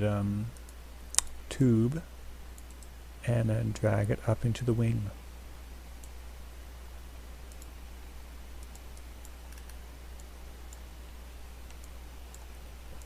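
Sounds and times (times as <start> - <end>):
steady low hum: 0.0 - 13.0
mouse and keyboard clicks: 8.6 - 10.8.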